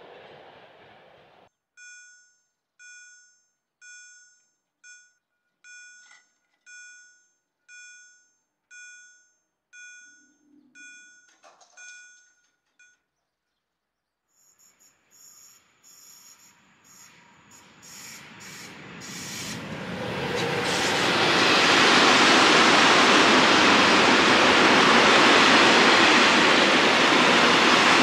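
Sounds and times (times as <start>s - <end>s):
level crossing warning bell: 1.8s - 13.1s.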